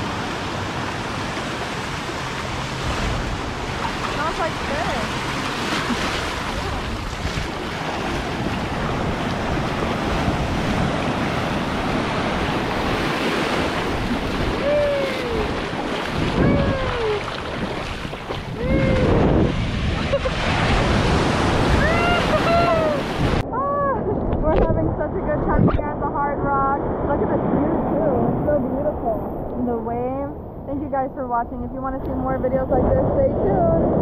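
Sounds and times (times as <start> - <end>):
ocean surf washing: 0.0 - 34.0
wind buffeting microphone: 0.0 - 34.0
short falling cries: 14.5 - 15.6.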